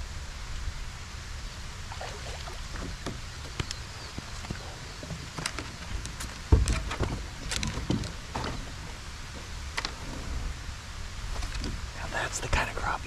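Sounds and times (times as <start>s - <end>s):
wind rumble on microphone: 0.0s - 13.0s
clicks and bumps from hull: 2.7s - 10.1s, 11.4s - 11.8s.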